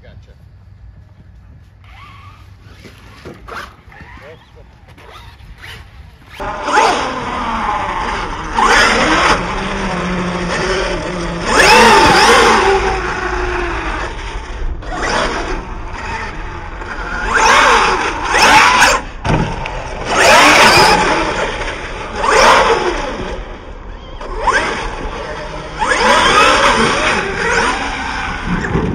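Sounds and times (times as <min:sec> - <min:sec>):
tyres scrabbling on loose dirt: 0:01.6 - 0:06.5
electric motor whine: 0:01.7 - 0:28.9.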